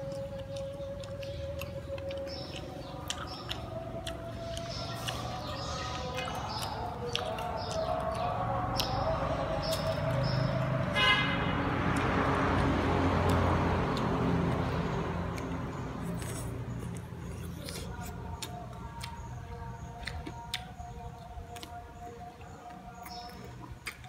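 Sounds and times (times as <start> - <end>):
mouth clicks and eating smacks: 0.0 - 10.7, 11.9 - 24.0
passing vehicle: 0.0 - 24.0
vehicle horn toot: 10.9 - 11.6.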